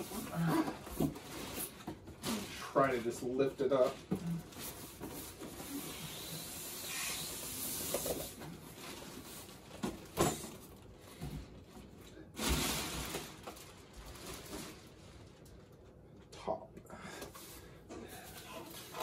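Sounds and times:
styrofoam scraping and squeaking: 0.0 - 9.4, 18.4 - 19.0
plastic wrap rustling: 0.0 - 15.9, 18.1 - 19.0.

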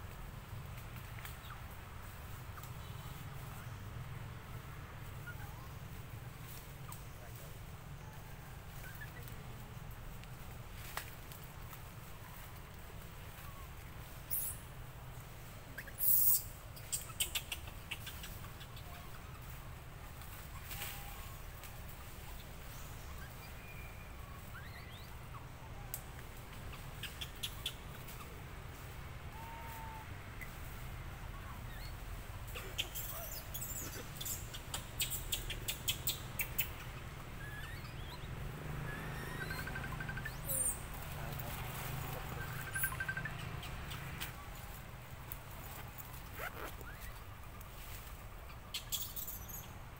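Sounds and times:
sharp high-pitched clicks and chirps: 39.3 - 40.9, 42.4 - 44.4.

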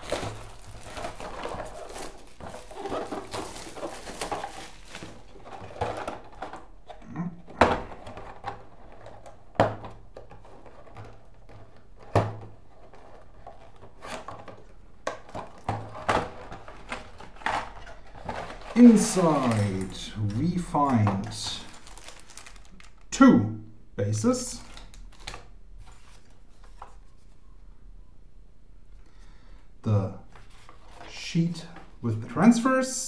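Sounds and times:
cardboard packaging rustling: 0.0 - 23.1, 24.6 - 27.4, 30.3 - 32.0.

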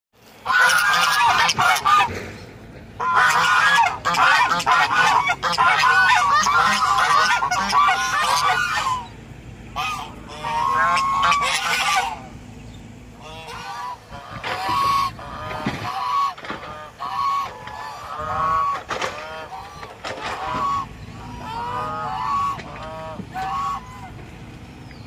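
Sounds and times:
geese honking loudly: 0.3 - 25.0.

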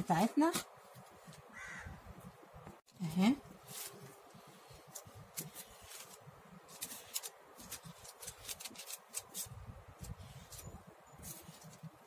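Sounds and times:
marker pen scratching: 4.4 - 12.0.

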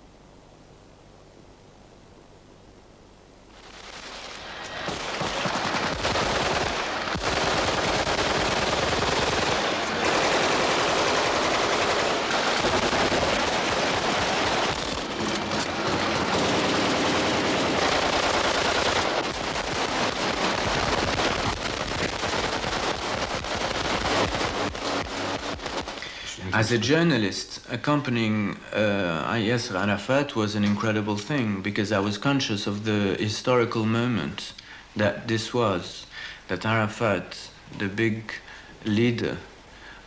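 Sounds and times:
automatic weapon fire: 3.6 - 26.1.

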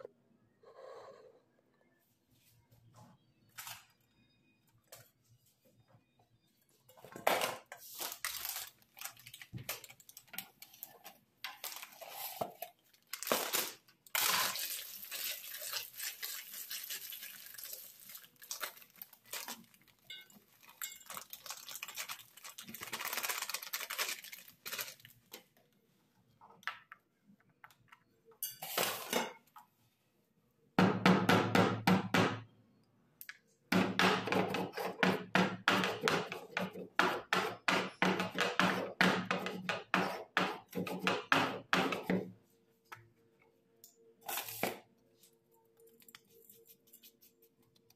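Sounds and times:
metal pot and utensils clinking: 20.1 - 21.4, 28.4 - 29.5.

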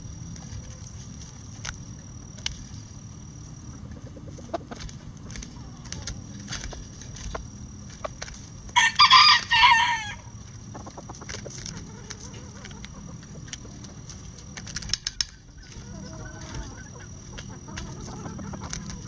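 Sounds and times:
chickens pecking at cabbage: 0.0 - 19.0
rooster crowing: 8.8 - 10.4.

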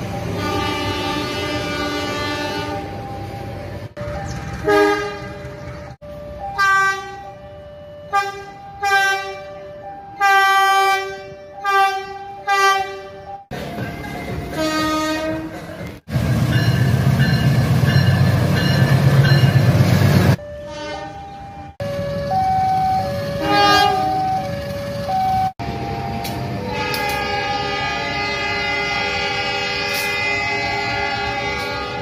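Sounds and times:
rumble of a passing train: 0.0 - 32.0
train horn toots: 0.4 - 2.9, 4.6 - 5.5, 6.6 - 7.3, 8.1 - 9.6, 10.2 - 13.3, 14.5 - 15.6, 20.6 - 21.2, 23.4 - 24.3, 26.6 - 32.0
long multi-note horn blast: 26.6 - 32.0.

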